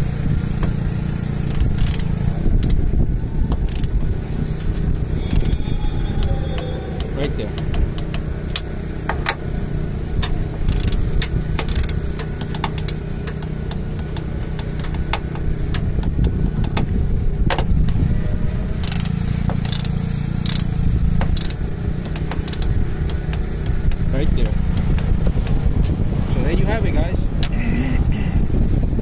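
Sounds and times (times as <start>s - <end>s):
low rumble: 0.0s - 29.0s
torque wrench ratchet clicking: 0.4s - 18.0s, 18.8s - 26.0s.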